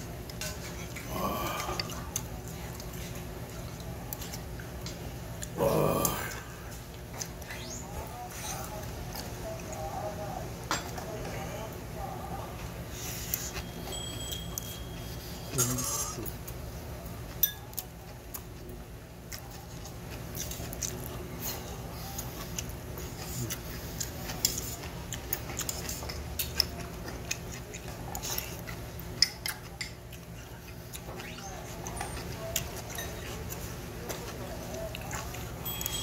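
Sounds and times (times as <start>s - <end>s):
spoon and chopsticks clinking bowl: 13.6s - 15.0s, 17.3s - 17.8s, 32.8s - 33.4s, 35.6s - 36.0s
chewing and wet mouth smacks: 22.2s - 35.5s.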